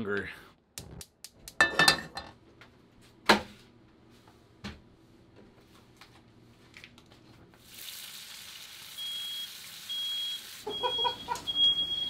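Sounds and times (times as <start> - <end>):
bacon sizzling in a frying pan: 7.6 - 11.0
smoke alarm beeping: 9.0 - 12.0.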